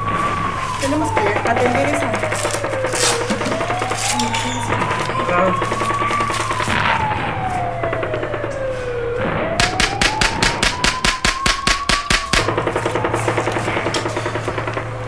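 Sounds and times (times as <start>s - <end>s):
emergency siren wailing: 0.0s - 15.0s
automatic gunfire: 9.5s - 14.8s.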